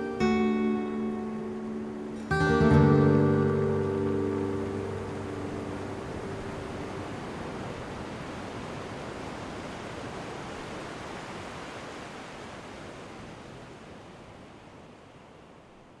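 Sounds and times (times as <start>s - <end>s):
steady hiss of noise: 0.0s - 16.0s.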